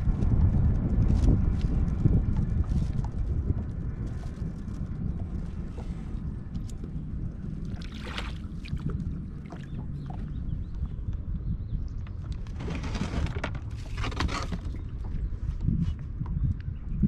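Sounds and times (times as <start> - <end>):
low rumble on water: 0.0 - 17.0.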